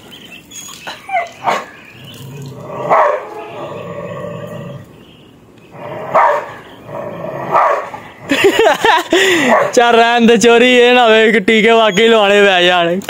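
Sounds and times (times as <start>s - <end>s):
dog barking: 1.2s - 1.7s, 2.9s - 3.4s, 6.1s - 6.6s, 7.5s - 8.0s, 9.4s - 9.8s
dog growling: 2.0s - 4.9s, 6.9s - 7.6s.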